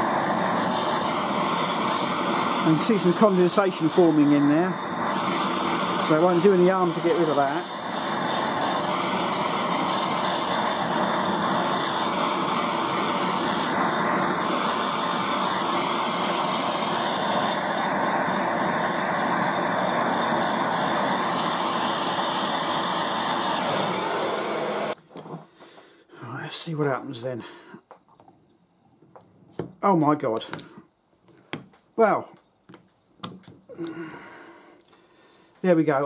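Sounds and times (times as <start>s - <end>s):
blowtorch flame roaring: 0.0s - 25.4s, 33.7s - 34.8s.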